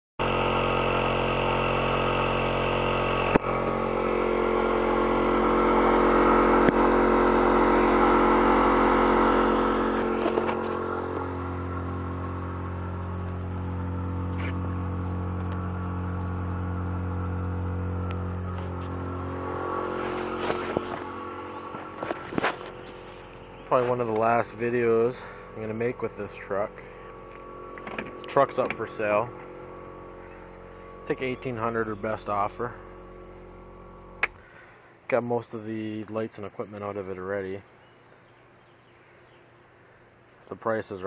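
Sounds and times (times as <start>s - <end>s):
air compressor running: 0.2s - 35.1s.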